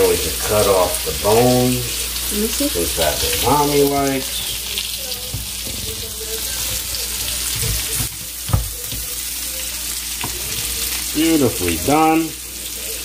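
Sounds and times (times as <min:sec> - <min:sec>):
green beans sizzling in pan: 0:00.0 - 0:13.0
knock on cutting board: 0:07.5 - 0:09.1.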